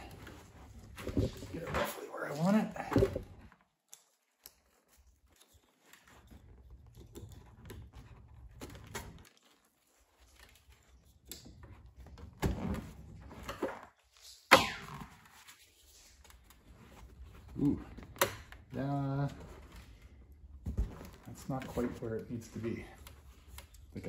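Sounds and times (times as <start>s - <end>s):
rustling and rubbing: 0.0s - 14.5s, 15.1s - 24.0s.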